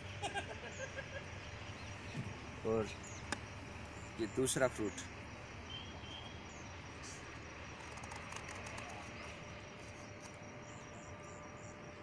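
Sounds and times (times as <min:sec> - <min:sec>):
faint bird chirps: 0:03.9 - 0:11.9.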